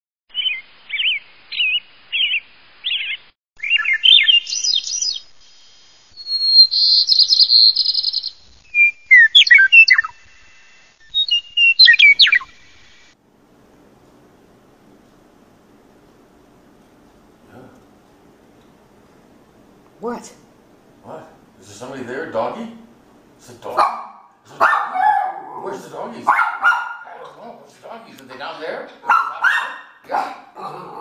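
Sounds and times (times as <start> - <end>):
songbird singing: 0.3 - 5.4, 6.2 - 10.2, 11.0 - 13.1.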